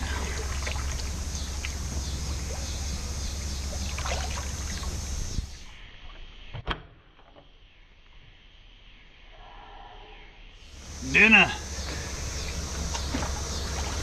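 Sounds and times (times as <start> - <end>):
water splashing and sloshing: 0.0 - 6.3, 11.6 - 14.0.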